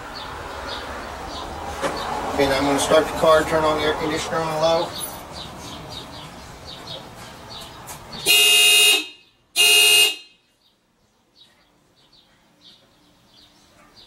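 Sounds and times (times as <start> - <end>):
car horn honking: 8.2 - 10.5.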